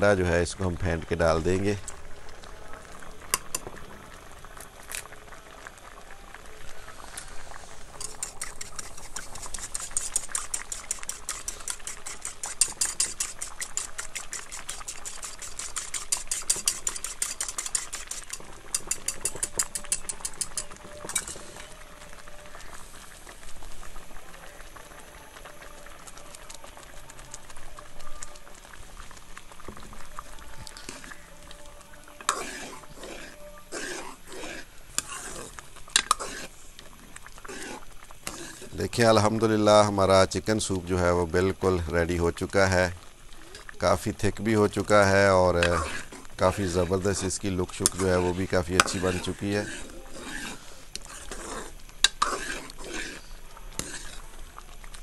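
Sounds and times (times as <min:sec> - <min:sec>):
ladle scraping metal pot: 0:07.1 - 0:21.8, 0:29.6 - 0:39.1, 0:43.6 - 0:54.4
whisk clicking against bowl: 0:08.0 - 0:21.4.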